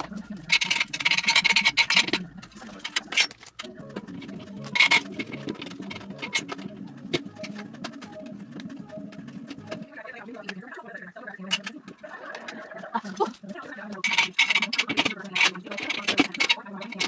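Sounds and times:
furniture parts clicking and tapping: 0:13.9 - 0:17.0.

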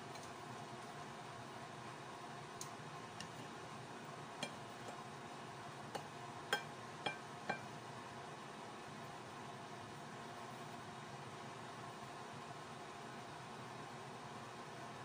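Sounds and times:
spoon clinking against a plate: 0:04.4 - 0:05.0, 0:05.9 - 0:07.7.

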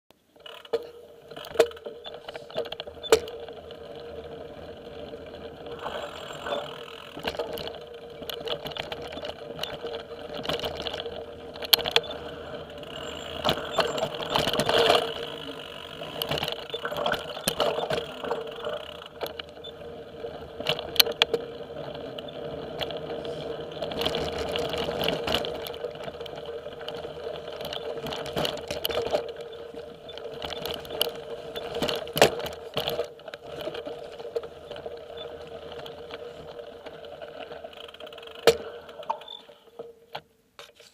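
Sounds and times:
bike knocks and rattles: 0:00.4 - 0:40.8
steady hum: 0:03.3 - 0:08.9.

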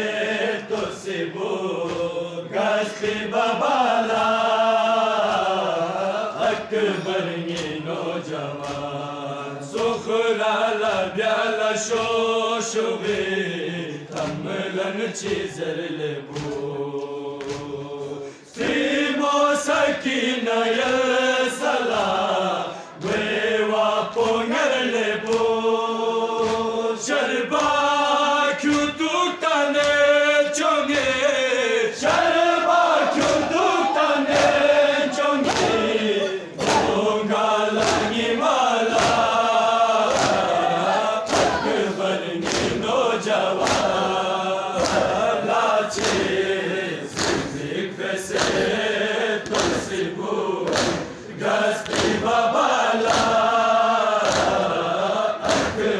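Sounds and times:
men chanting in unison: 0:00.0 - 0:55.9
hands slapping chests: 0:00.4 - 0:03.4, 0:06.4 - 0:10.2, 0:14.1 - 0:19.0, 0:20.7 - 0:24.5, 0:25.1 - 0:25.6, 0:26.3 - 0:30.2, 0:30.8 - 0:31.3, 0:32.0 - 0:44.2, 0:44.8 - 0:47.7, 0:48.3 - 0:48.8, 0:49.4 - 0:54.8, 0:55.4 - 0:55.9.

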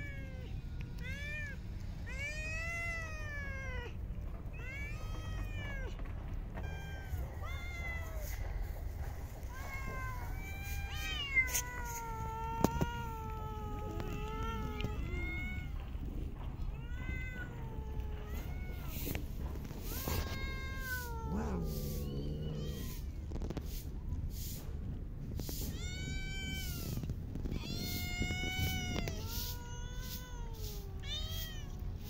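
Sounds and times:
cats meowing: 0:00.0 - 0:24.0, 0:25.2 - 0:32.0.

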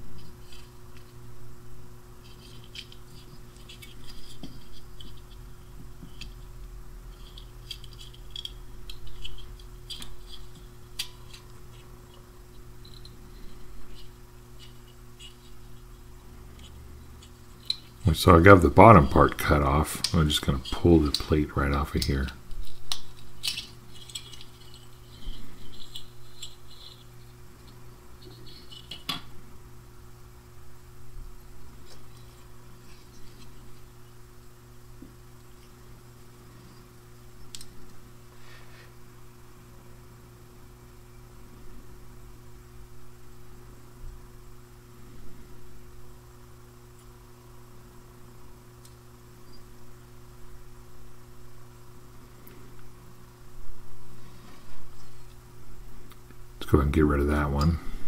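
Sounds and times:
low electrical hum: 0:00.0 - 0:58.0
blade clicking and scratching: 0:02.3 - 0:05.4, 0:06.0 - 0:18.1, 0:19.0 - 0:29.1.

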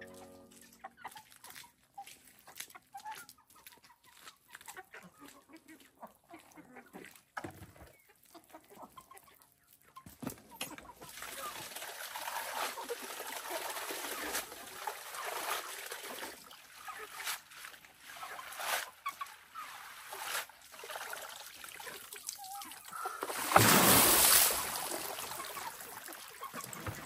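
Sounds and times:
greens swished in water: 0:23.2 - 0:26.8
water tipped out splashing: 0:23.2 - 0:26.9.

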